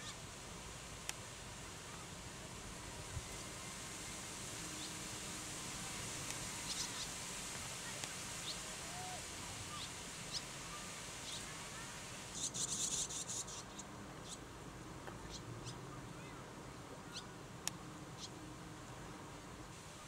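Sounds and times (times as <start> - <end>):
swallow chicks chirping: 6.5 - 7.2, 9.7 - 11.5, 12.3 - 14.4.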